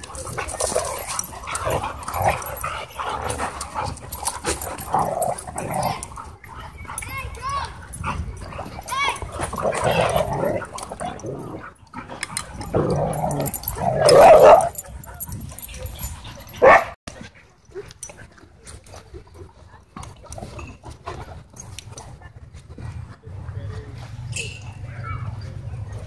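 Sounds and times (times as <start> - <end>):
dogs growling: 0.0 - 7.0, 7.8 - 17.0
dogs barking: 0.0 - 17.0.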